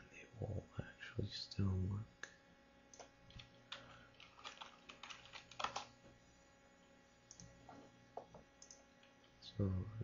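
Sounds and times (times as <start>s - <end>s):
faint keyboard typing: 2.9s - 6.2s, 7.2s - 9.4s.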